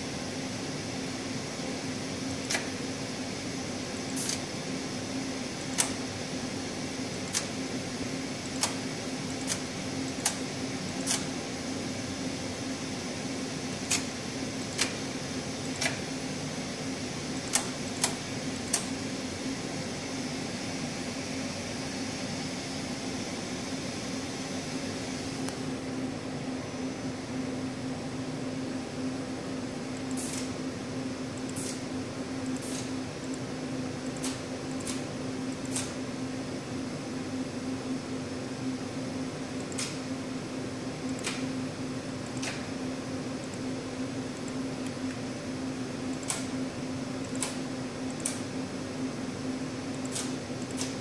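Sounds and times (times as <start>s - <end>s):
steady machine hum: 0.0s - 51.0s
sharp machine clicks: 17.5s - 18.9s.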